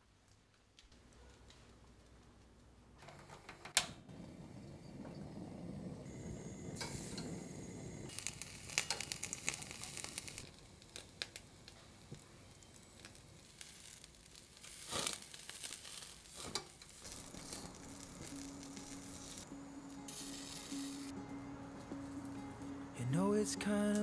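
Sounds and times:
meat crackling and sizzling: 6.1s - 24.0s.

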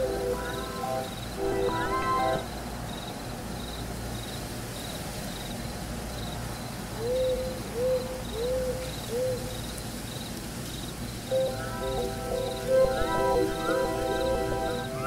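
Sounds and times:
cricket chirping: 9.6s - 15.0s.

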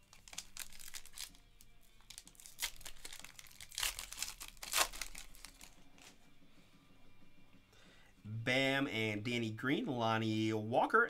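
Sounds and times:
foil wrapper tearing and crinkling: 0.0s - 6.1s.

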